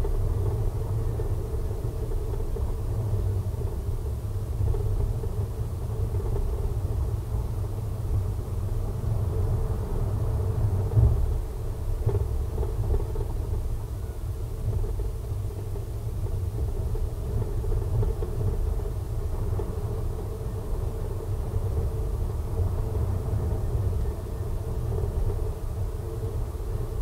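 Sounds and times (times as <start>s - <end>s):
car tyre and engine rumble: 0.0s - 27.0s.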